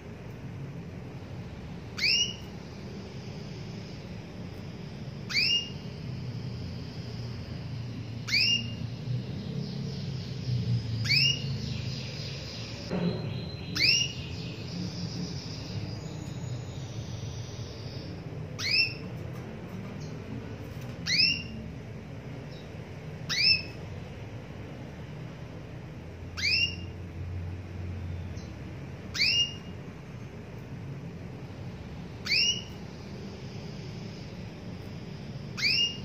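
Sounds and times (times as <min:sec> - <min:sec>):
canary twittering: 0:01.8 - 0:19.2, 0:20.0 - 0:21.7, 0:22.4 - 0:23.9, 0:26.3 - 0:27.0, 0:28.3 - 0:29.8, 0:32.0 - 0:36.0
canary call notes: 0:01.9 - 0:02.7, 0:05.2 - 0:06.1, 0:08.2 - 0:08.9, 0:11.0 - 0:19.1, 0:21.0 - 0:21.6, 0:23.2 - 0:23.8, 0:26.3 - 0:27.0, 0:29.1 - 0:29.8, 0:32.1 - 0:33.0, 0:35.5 - 0:36.0.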